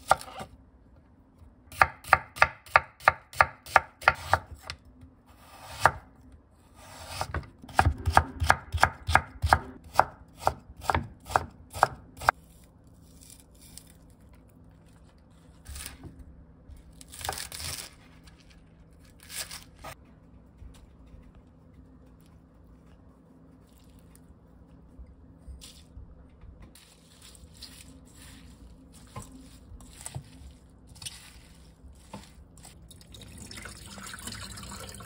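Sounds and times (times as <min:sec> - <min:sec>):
knife chopping on wooden board: 0:01.7 - 0:04.8, 0:06.9 - 0:12.3.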